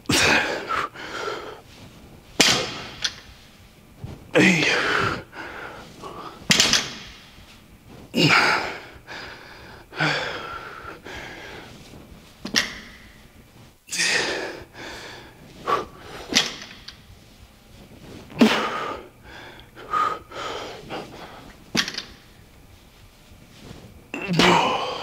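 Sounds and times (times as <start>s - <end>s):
man breathing hard: 0.1s - 1.9s, 4.3s - 7.1s, 8.1s - 11.9s, 13.9s - 16.9s, 18.4s - 22.2s, 24.4s - 25.0s
barbell knocks: 2.4s - 3.1s.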